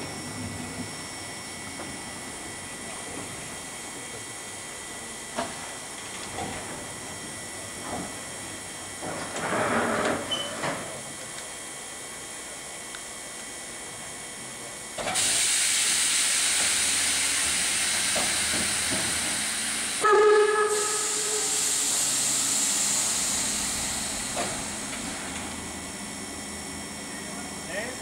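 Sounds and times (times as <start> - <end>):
steam hissing: 15.0 - 27.9
steam whistle blast: 20.0 - 21.8.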